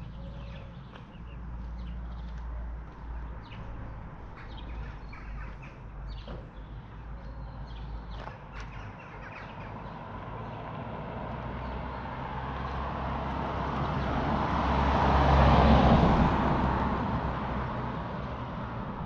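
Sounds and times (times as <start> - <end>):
vehicle passing by: 10.0 - 19.0.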